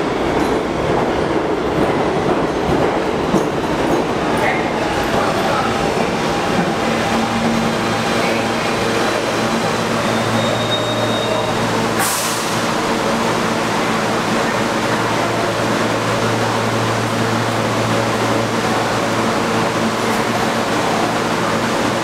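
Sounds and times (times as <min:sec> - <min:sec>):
subway car equipment humming: 0:00.0 - 0:22.0
short air hiss: 0:12.0 - 0:12.7.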